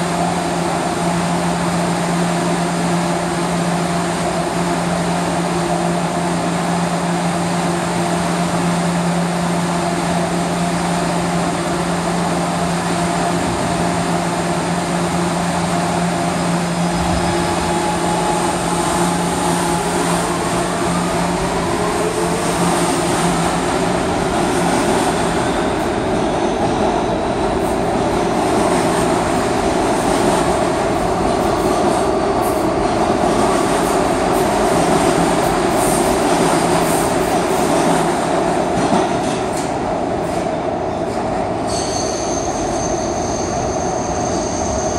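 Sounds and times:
train humming: 0:00.0 - 0:44.9
train propulsion whining: 0:13.6 - 0:27.8.

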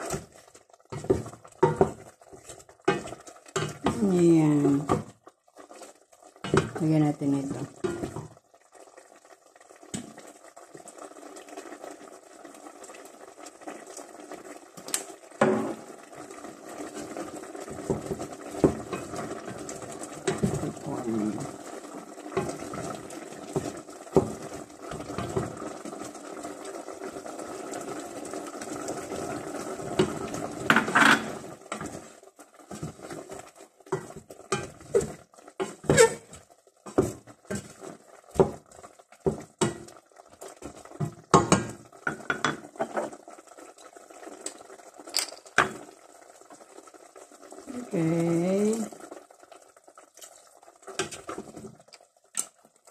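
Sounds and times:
wooden spoon scraping a pot: 0:00.0 - 0:05.1, 0:05.7 - 0:08.4, 0:16.6 - 0:26.1, 0:28.9 - 0:43.2, 0:51.0 - 0:51.8
steady cooking hiss: 0:00.0 - 0:52.9.

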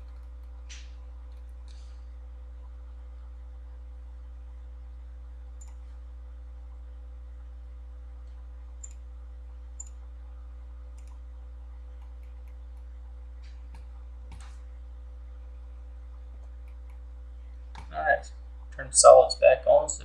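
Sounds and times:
steady low hum: 0:00.0 - 0:20.0
faint mouse clicks: 0:05.6 - 0:05.8, 0:10.9 - 0:11.2, 0:16.4 - 0:17.0.

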